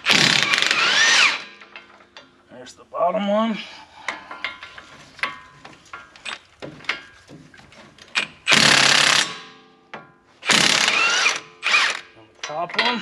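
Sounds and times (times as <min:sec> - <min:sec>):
power tool running: 0:00.0 - 0:01.5, 0:10.4 - 0:12.1.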